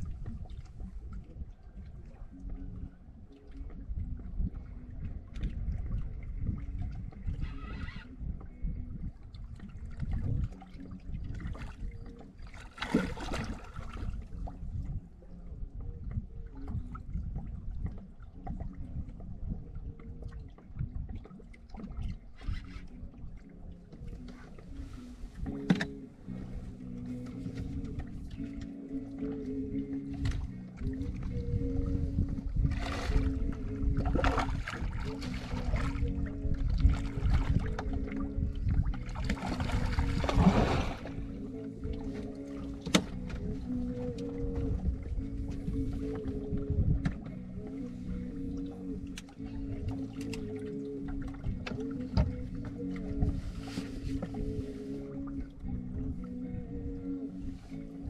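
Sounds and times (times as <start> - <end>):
music: 0.0 - 58.0
wind and water rumble: 0.0 - 58.0
steady low tones: 22.9 - 58.0.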